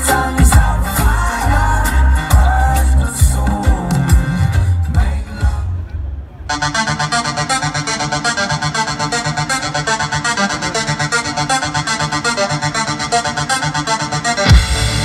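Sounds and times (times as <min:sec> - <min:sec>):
electronic music over loudspeakers: 0:00.0 - 0:15.0.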